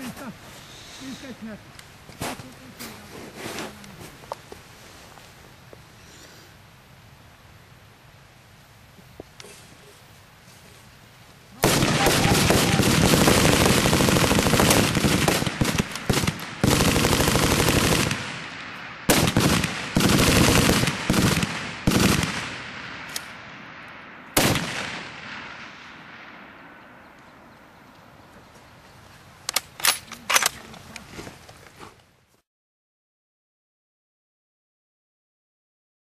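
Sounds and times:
single gunshots echoing: 11.6s - 17.0s, 24.4s - 27.2s
automatic gunfire: 11.6s - 18.5s, 19.1s - 23.1s, 24.4s - 25.6s.

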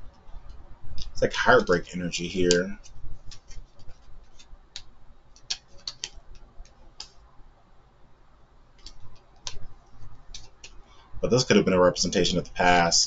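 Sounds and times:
cards clicking and snapping: 2.5s - 7.2s, 8.8s - 10.8s.

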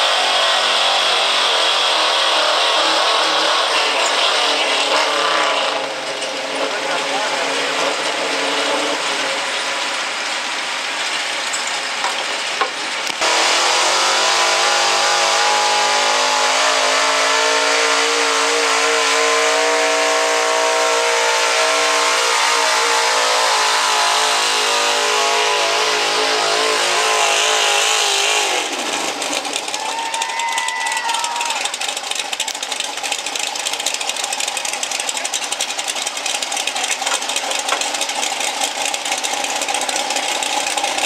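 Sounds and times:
another pickup engine: 0.0s - 41.0s
pickup truck engine at high revs: 0.0s - 41.0s.

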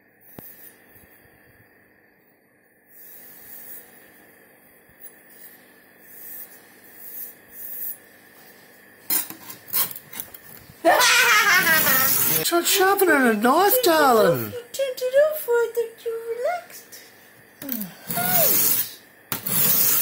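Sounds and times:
loud voice: 11.6s - 14.7s.

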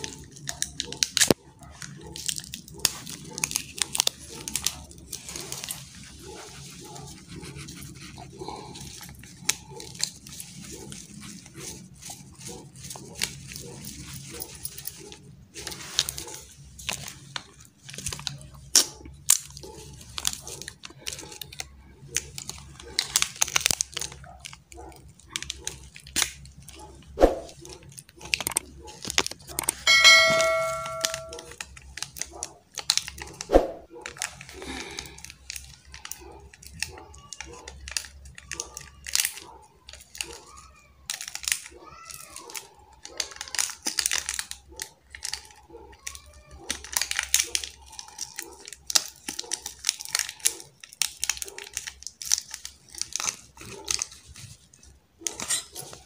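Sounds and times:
plastic sachets tearing and crinkling: 0.0s - 29.9s, 31.4s - 56.0s
steady pitched tone: 29.9s - 31.4s.

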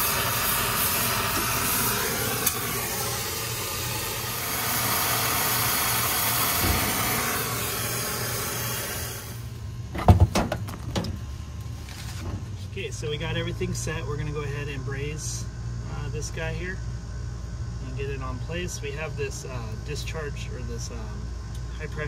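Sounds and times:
torch flame hissing: 0.0s - 9.6s.

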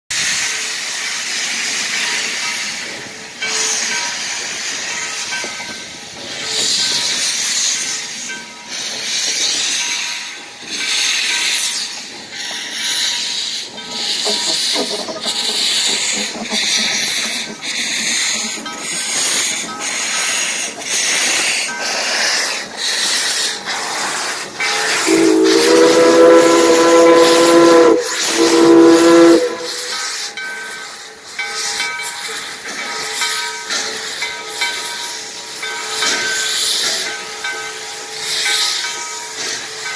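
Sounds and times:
steam locomotive puffing: 10.7s - 31.0s
train chime whistle: 24.6s - 30.4s.

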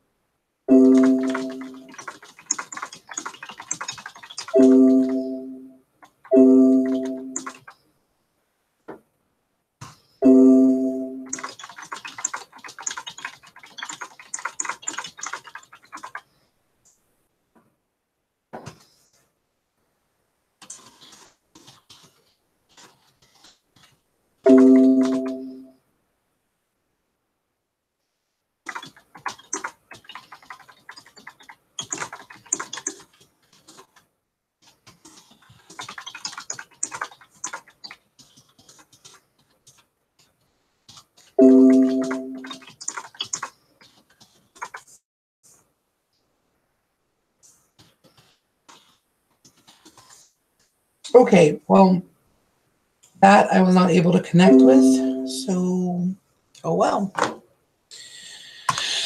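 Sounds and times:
soft rustles and taps: 18.5s - 19.3s
piano-like chime: 41.4s - 42.5s.

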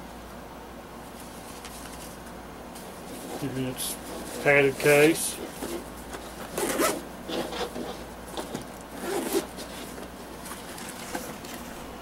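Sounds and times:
zipper being pulled: 5.4s - 9.9s.

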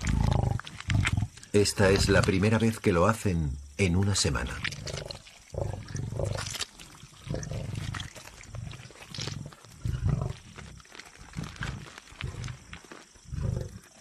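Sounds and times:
tearing and chewing meat: 0.0s - 1.5s, 4.6s - 14.0s
lionesses growling: 0.0s - 2.6s, 4.4s - 14.0s.

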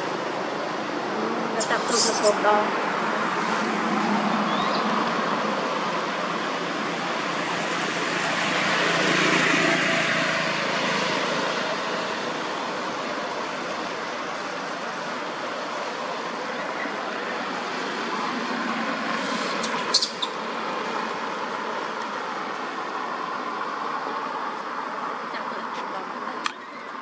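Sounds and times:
vehicle passing: 0.0s - 26.3s
road traffic: 0.0s - 27.0s.

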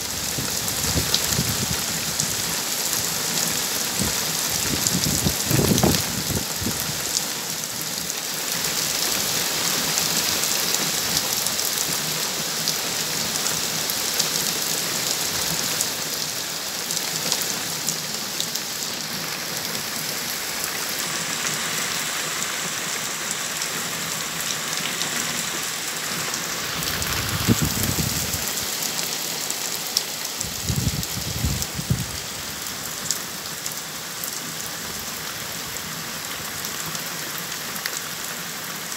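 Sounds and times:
heavy rain on gravel and leaves: 0.0s - 38.9s.

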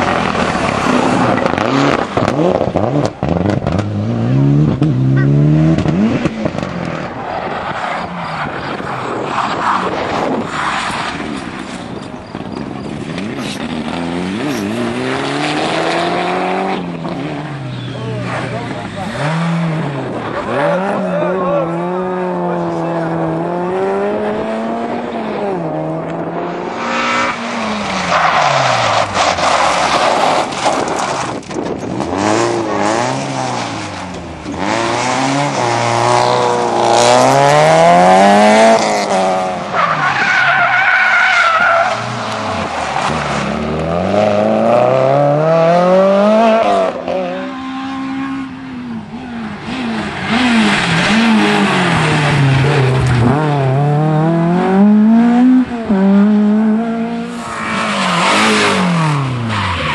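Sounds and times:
rally car engines revving: 0.0s - 59.9s.

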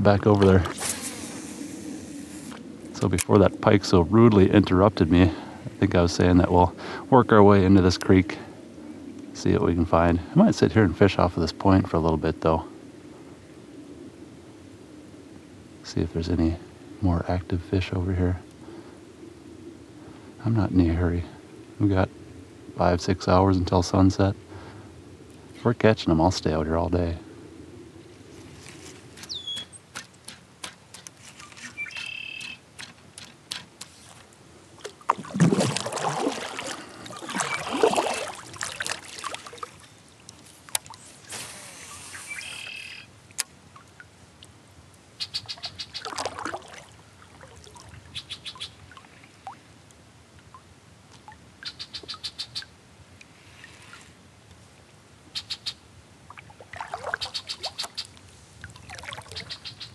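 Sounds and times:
birds chirping and trilling: 29.1s - 30.0s, 31.4s - 32.7s, 37.0s - 38.2s, 41.8s - 43.1s, 45.2s - 46.2s, 48.1s - 48.9s, 51.6s - 52.7s, 55.3s - 55.8s, 57.0s - 58.2s, 59.2s - 59.9s.

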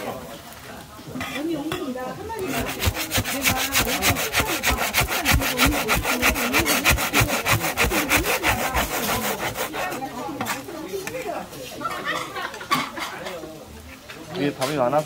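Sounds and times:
metal spatula scraping griddle: 1.2s - 1.8s, 2.4s - 10.7s.

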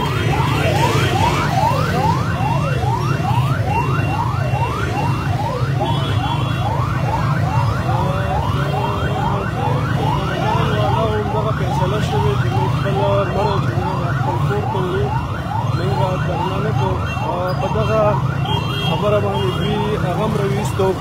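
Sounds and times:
crowd and traffic rumble: 0.0s - 21.0s
siren yelping: 0.0s - 21.0s.

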